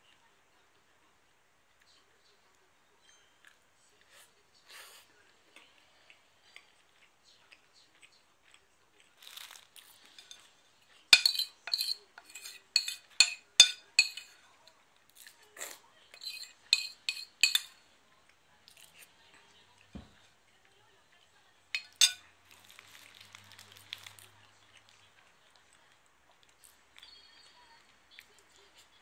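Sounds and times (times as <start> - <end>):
tableware clinking: 10.1 - 10.5, 11.2 - 14.5, 16.2 - 17.8, 21.8 - 22.2.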